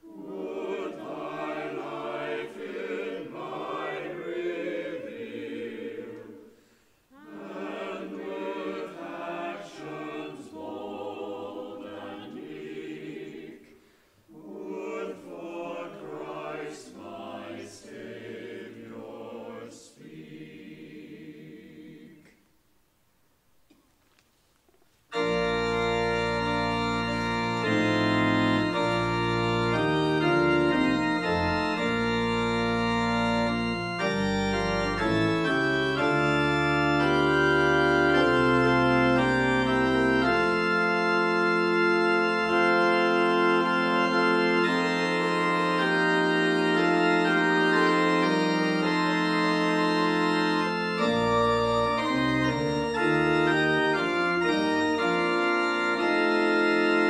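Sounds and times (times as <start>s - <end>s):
church organ chords: 0.0s - 6.4s, 7.2s - 13.5s, 14.4s - 19.7s, 25.1s - 57.0s
deep organ pedal notes: 25.1s - 57.0s.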